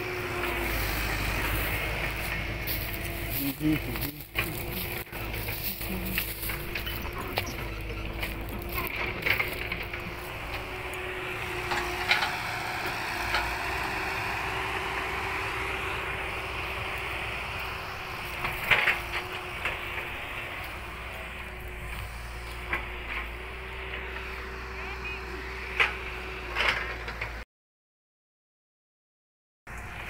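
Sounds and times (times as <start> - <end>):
footsteps crunching on straw: 0.0 - 12.0, 16.3 - 23.7
engine hum: 0.0 - 27.4, 29.7 - 30.0.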